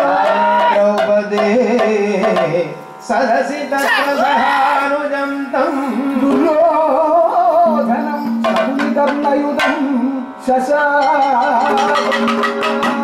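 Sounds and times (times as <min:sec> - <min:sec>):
singer's ornamented melody: 0:00.0 - 0:13.0
sharp percussion strokes: 0:07.7 - 0:13.0.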